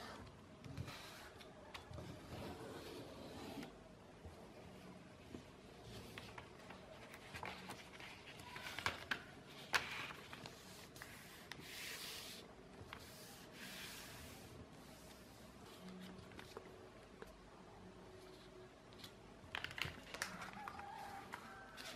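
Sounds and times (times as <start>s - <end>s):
paper rustling: 5.8s - 14.1s
paper being folded and creased: 5.8s - 16.7s, 18.4s - 21.9s
sharp paper crackles: 19.5s - 21.9s.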